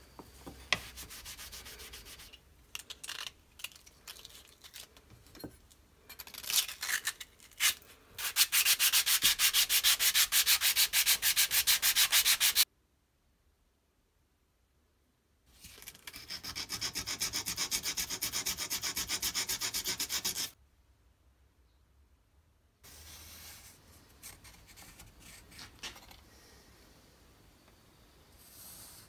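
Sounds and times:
sandpaper scraping metal: 0:07.6 - 0:12.6, 0:16.0 - 0:20.6.

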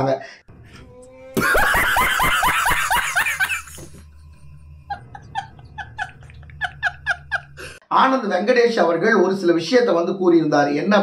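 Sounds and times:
man laughing hard: 0:01.4 - 0:04.0, 0:04.9 - 0:07.8.

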